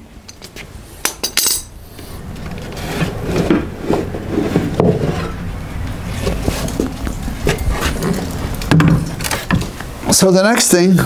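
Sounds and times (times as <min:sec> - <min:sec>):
scraping and knocks: 0:02.3 - 0:10.2.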